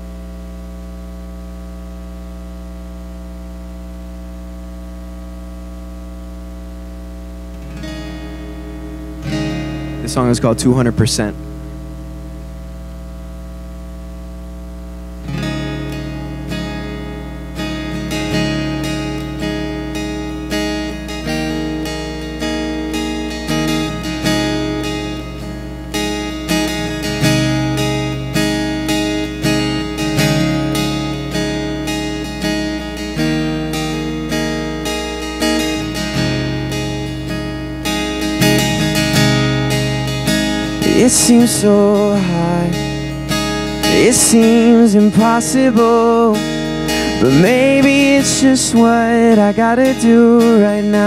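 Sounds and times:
low hum: 0.0 - 22.0
acoustic guitar strumming: 0.0 - 51.0.

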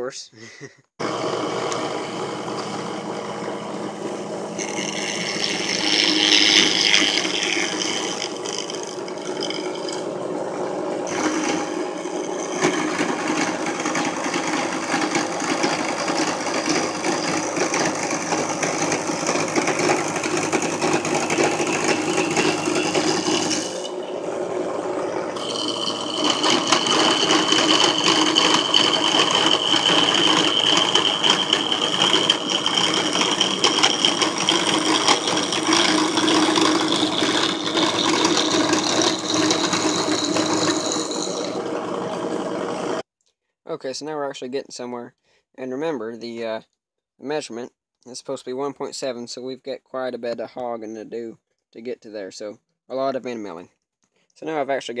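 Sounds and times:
drill press high whine: 1.0 - 43.0.

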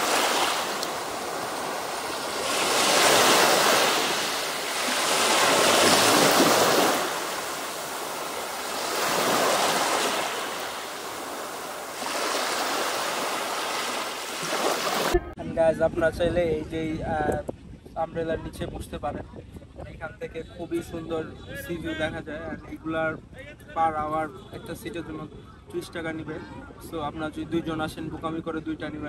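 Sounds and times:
waves washing on pebble beach: 0.0 - 15.2.

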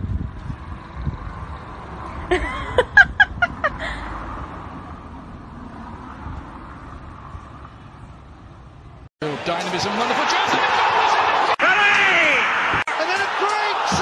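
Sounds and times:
outdoor background rumble: 0.0 - 9.1.

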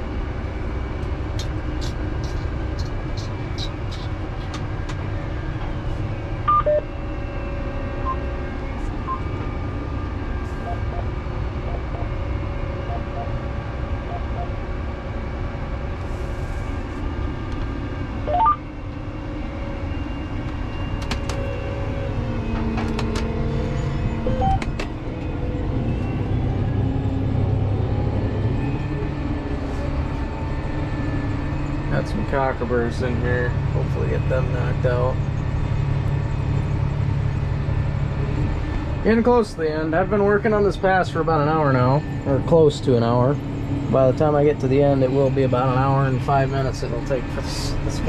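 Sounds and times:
tractor engine running: 0.0 - 48.0
short electronic beeps: 6.5 - 6.9, 8.0 - 8.3, 9.0 - 9.3, 10.6 - 12.2, 12.8 - 13.4, 14.0 - 14.6, 18.3 - 18.6.

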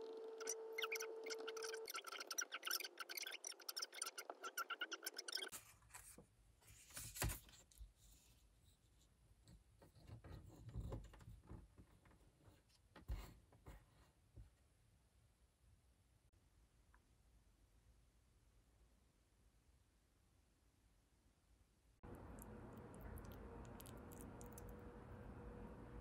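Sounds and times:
paper rustling: 5.5 - 7.8.

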